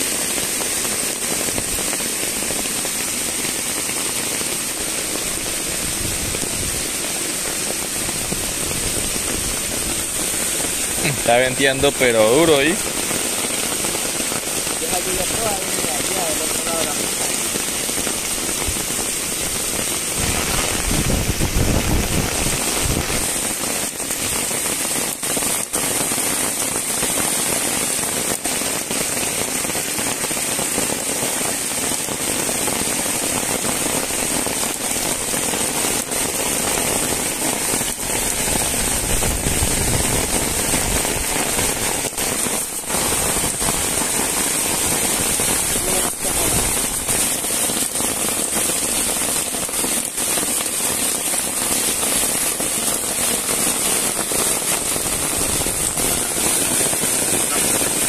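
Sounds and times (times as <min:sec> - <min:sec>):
heavy rain: 0:00.0 - 0:58.0
wind buffeting microphone: 0:20.1 - 0:23.3, 0:38.2 - 0:41.3.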